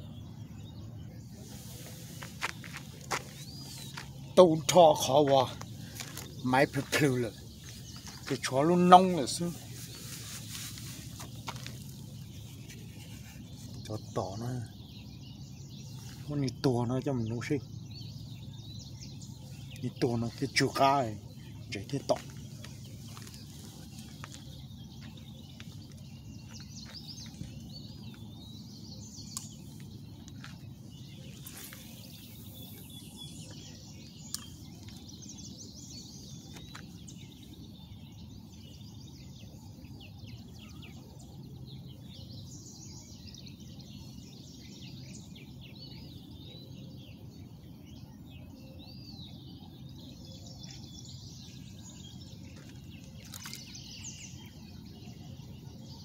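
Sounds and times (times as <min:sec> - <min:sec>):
low outdoor rumble: 0:00.0 - 0:44.6
small birds chirping: 0:00.0 - 0:56.0.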